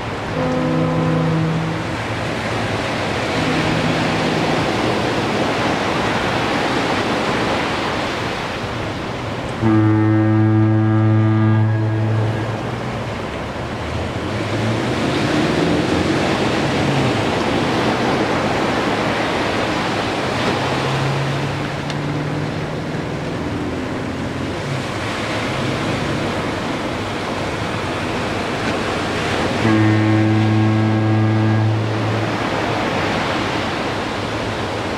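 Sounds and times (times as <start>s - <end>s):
ocean surf breaking on beach: 0.0s - 34.9s
deep foghorn blast: 0.1s - 6.7s, 9.5s - 13.2s, 14.2s - 27.0s, 28.7s - 34.6s
faint low horn tone: 0.2s - 5.8s, 9.5s - 13.2s, 20.4s - 26.4s, 29.1s - 34.1s.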